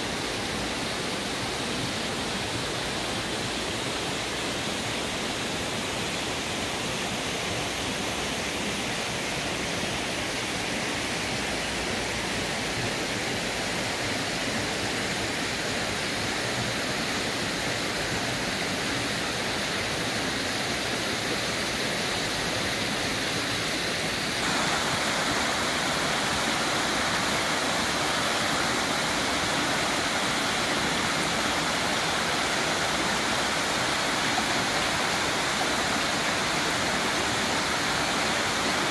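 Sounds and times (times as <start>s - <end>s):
waterfall: 0.0s - 38.9s
water rushing in rocky stream: 22.4s - 38.9s.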